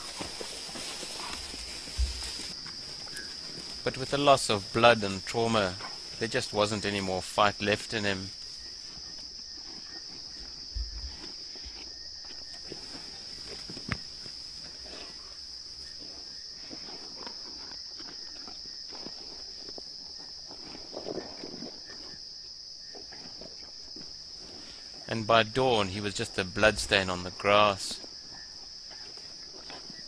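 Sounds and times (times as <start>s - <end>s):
rustling: 0.0s - 6.9s, 8.3s - 17.7s
night insects chirring: 0.0s - 30.0s.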